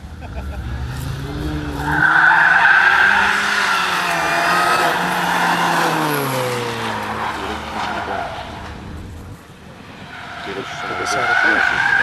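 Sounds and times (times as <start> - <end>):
car engine revving: 0.0 - 12.0
tyres squealing: 1.7 - 8.8, 10.1 - 12.0.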